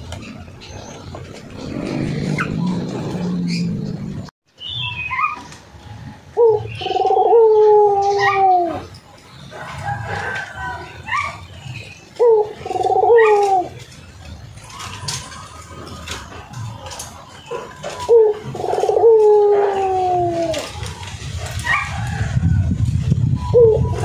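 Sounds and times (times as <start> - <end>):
rooster crowing: 9.5 - 11.1.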